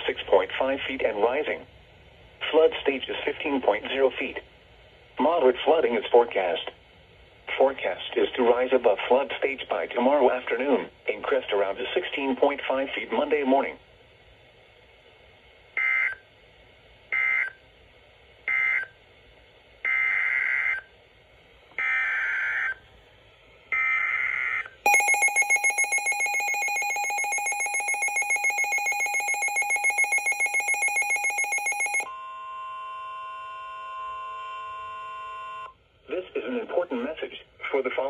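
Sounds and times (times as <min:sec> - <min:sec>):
rapidly pulsing alert beep: 0:24.9 - 0:32.1
warbling data bursts: 0:24.9 - 0:32.1
steady warning tone: 0:24.9 - 0:35.7.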